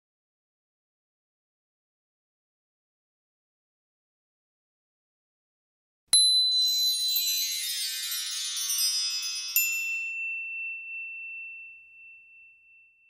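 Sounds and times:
shimmering cascade of chimes: 6.2 - 12.1
ringing high tone: 6.2 - 13.0.

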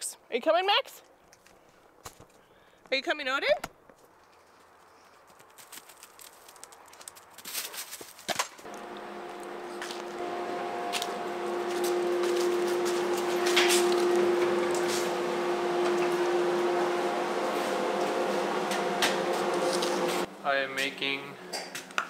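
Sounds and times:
machine hum: 8.7 - 20.6.

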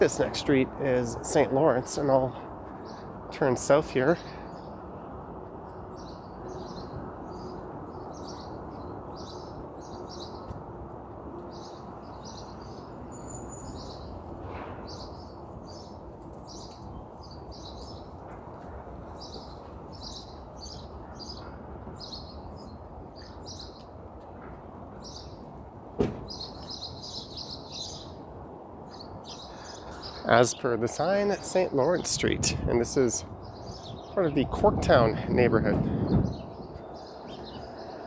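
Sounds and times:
small birds chirping: 0.0 - 4.9, 5.7 - 10.7, 11.4 - 24.0, 24.9 - 25.6, 26.2 - 38.0.

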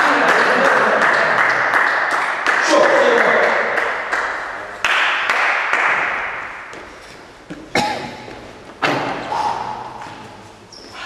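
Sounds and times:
spectators clapping: 0.0 - 6.6
knocks echoing in hall: 0.0 - 11.0.

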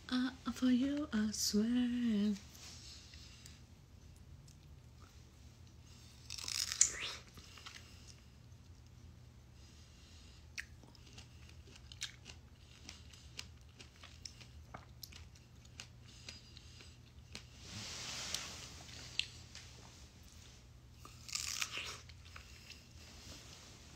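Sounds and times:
wet chewing mouth sounds: 10.5 - 17.5.

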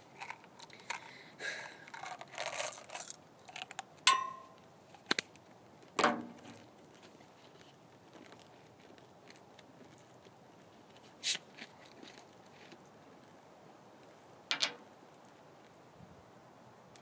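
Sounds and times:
wrapper rustling and crinkling: 0.0 - 3.8.

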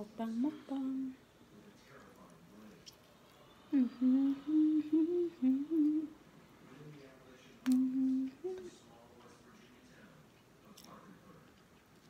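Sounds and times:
woman humming while eating: 3.8 - 6.2, 7.7 - 8.8.

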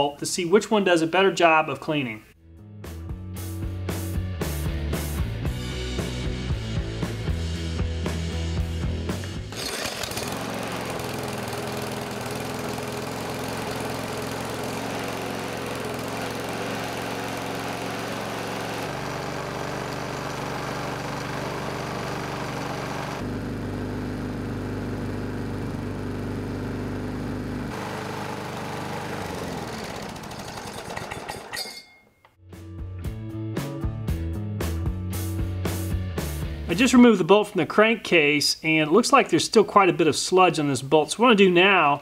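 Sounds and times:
lawn mower engine running: 9.1 - 31.8.

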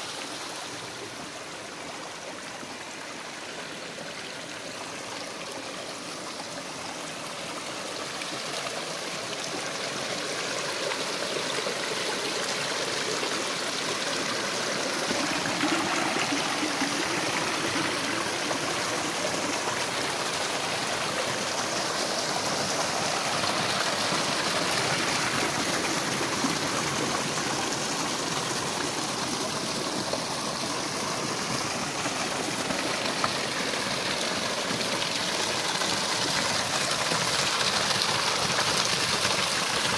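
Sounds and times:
stream splashing over stones: 2.9 - 39.9.

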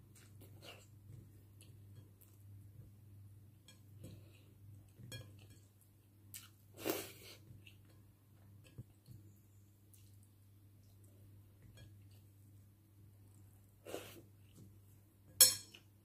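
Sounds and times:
soft chewing: 0.0 - 15.1.

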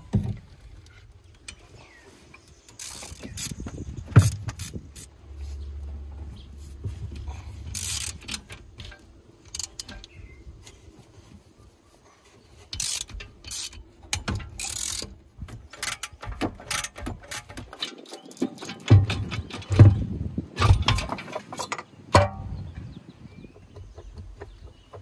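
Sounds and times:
ratchet wrench clicking: 2.7 - 5.1, 7.6 - 10.2, 12.7 - 17.7
metal-on-metal knocks: 15.5 - 22.6.

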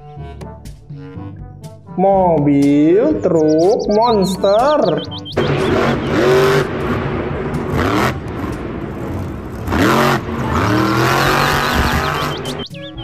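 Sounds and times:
rising sweeps: 3.1 - 13.0
monster truck engine revving: 5.4 - 12.7.

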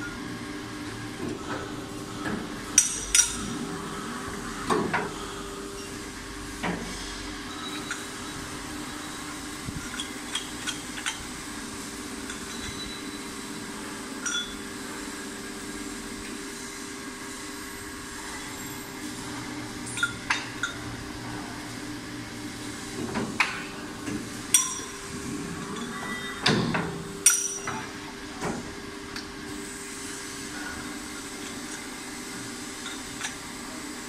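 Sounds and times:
metallic clanks and clinks: 14.2 - 14.6, 27.2 - 27.9.

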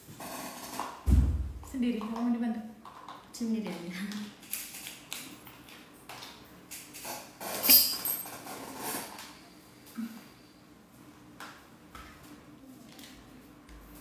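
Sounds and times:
sharp ringing clack: 7.6 - 8.2.

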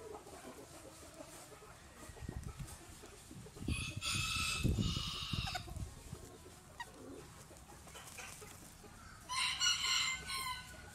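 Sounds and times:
soft scratchy rustle: 0.1 - 3.6, 5.4 - 9.3.

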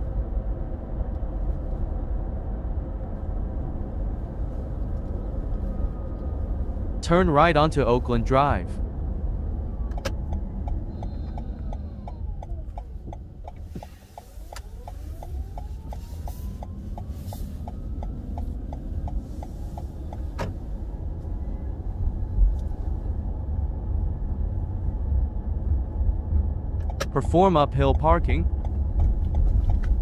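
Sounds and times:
road and tyre rumble: 0.0 - 30.0
turn signal ticking: 9.7 - 21.3, 26.7 - 30.0.

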